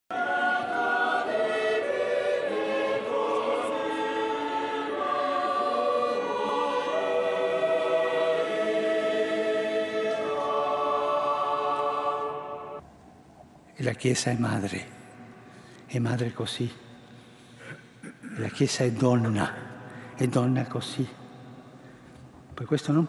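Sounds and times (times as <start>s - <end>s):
choir singing a chant: 0.1s - 12.8s.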